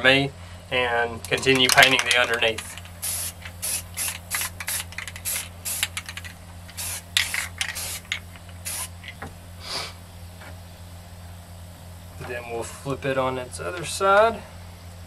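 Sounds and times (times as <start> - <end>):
spray paint can hissing: 1.4 - 9.1.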